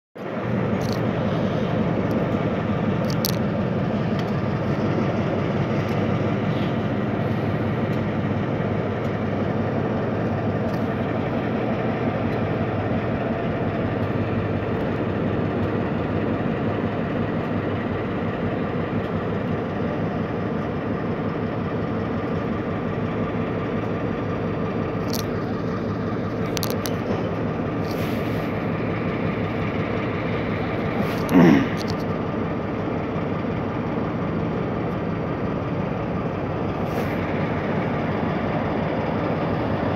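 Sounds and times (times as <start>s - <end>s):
diesel locomotive engine drone: 0.2s - 39.9s.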